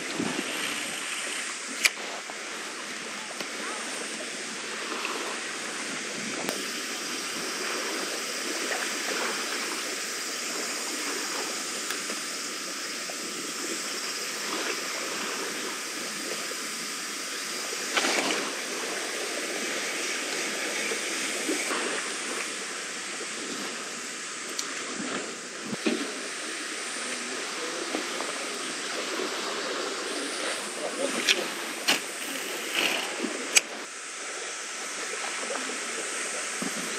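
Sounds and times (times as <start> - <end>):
seawater washing against wall: 29.1 - 33.8.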